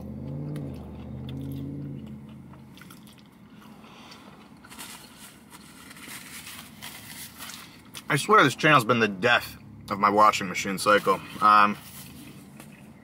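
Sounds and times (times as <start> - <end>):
person chewing crunchy fries: 0.0 - 8.1.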